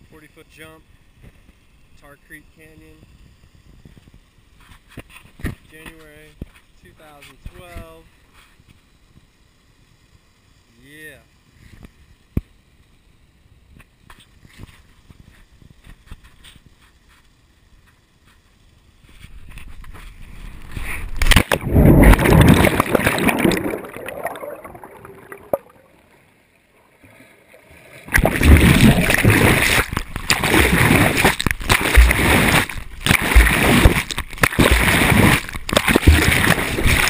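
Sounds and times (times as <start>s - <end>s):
muffled underwater churning: 20.1s - 37.0s
water splashing and sloshing: 20.2s - 37.0s
loud splash into water: 21.2s - 26.0s, 28.0s - 37.0s.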